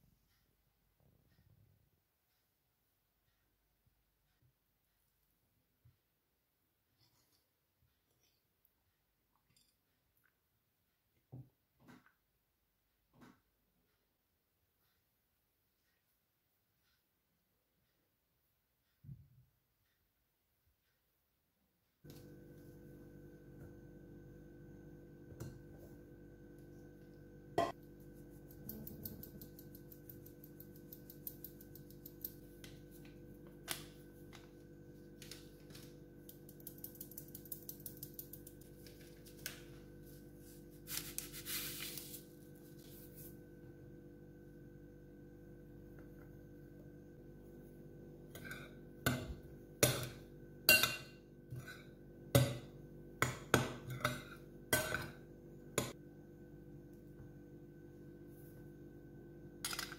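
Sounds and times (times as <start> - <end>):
steady low hum: 22.1 - 59.9
sieve rattling ticks: 36.3 - 38.8
metal spoon clinking on glass bowl: 50.7 - 51.1.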